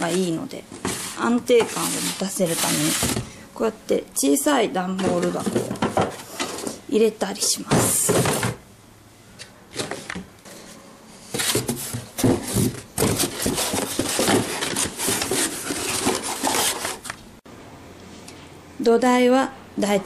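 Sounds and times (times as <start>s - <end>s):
cardboard boxes scraping and knocking: 0.0s - 3.3s, 11.3s - 17.1s.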